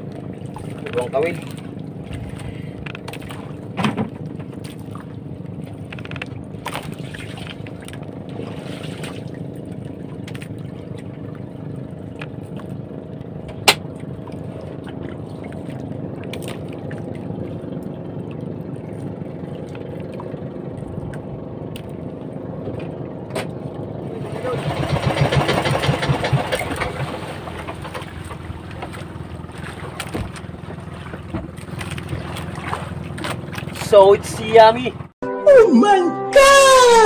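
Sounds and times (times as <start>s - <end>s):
boat engine idling: 0.0s - 35.2s
water sloshing against hull: 0.0s - 35.2s
clicks and knocks on wooden boat: 0.7s - 4.8s, 27.6s - 33.8s.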